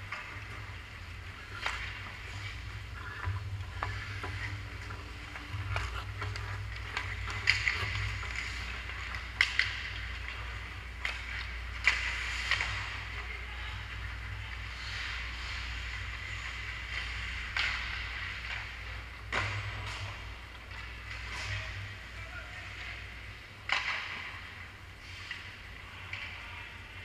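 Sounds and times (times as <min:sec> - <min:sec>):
steady low hum: 0:00.0 - 0:27.0
skate blades scraping ice: 0:00.1 - 0:21.8
sticks striking puck: 0:01.5 - 0:13.2, 0:14.9 - 0:21.8, 0:23.6 - 0:24.4.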